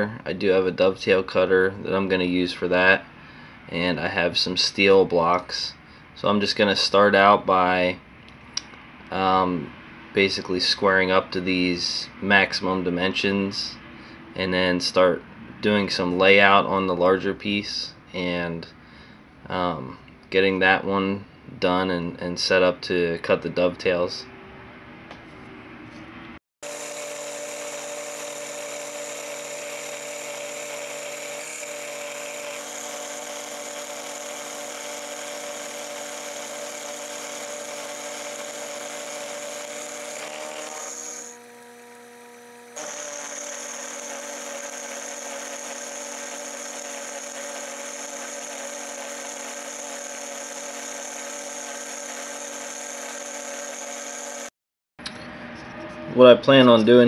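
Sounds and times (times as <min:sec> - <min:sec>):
milling machine whine: 0:26.6 - 0:54.5.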